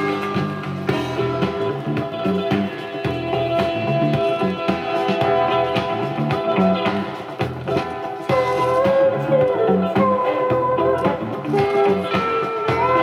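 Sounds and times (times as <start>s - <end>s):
song playing on record player: 0.0s - 13.0s.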